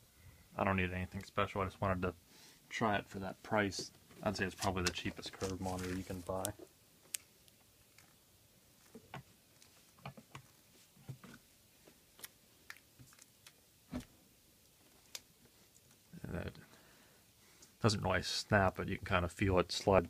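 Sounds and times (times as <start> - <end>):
short rustle: 4.2 - 6.6.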